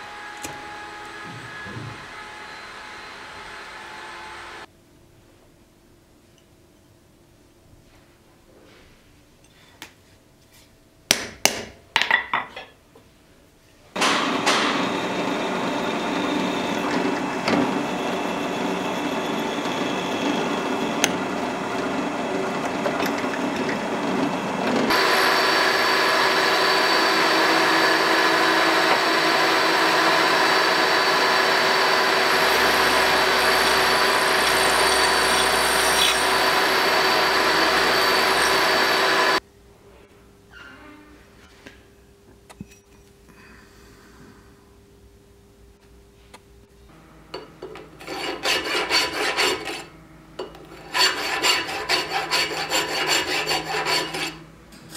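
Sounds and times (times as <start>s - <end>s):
drill press drilling steel: 14.0s - 39.4s, 50.8s - 54.4s
milling machine cutting metal: 14.0s - 39.4s, 50.8s - 54.4s.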